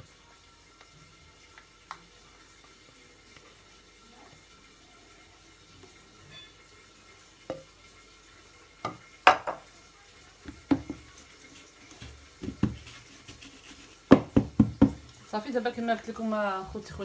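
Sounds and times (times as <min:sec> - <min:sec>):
kitchenware knocking on counter: 0:08.8 - 0:09.7, 0:10.5 - 0:11.0, 0:14.1 - 0:15.0
metal cake pan knocking: 0:08.9 - 0:09.6.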